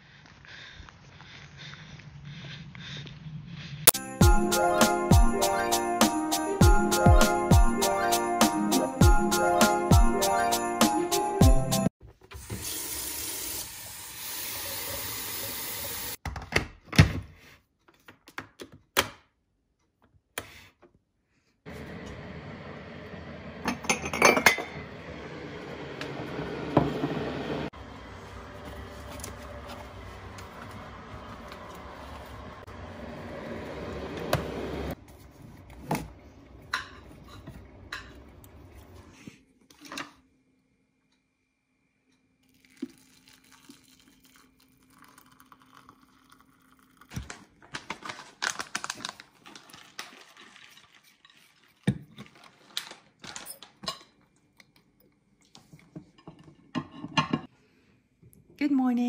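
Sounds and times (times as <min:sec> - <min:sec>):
water running: 0:12.4 - 0:16.2, 0:42.5 - 0:47.2
ceramic mug clinking: 0:23.8 - 0:24.8.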